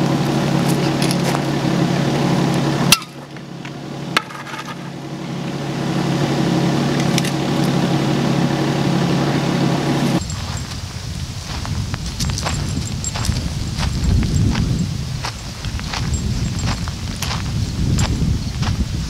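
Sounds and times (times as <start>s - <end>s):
engine hum: 0.0s - 19.0s.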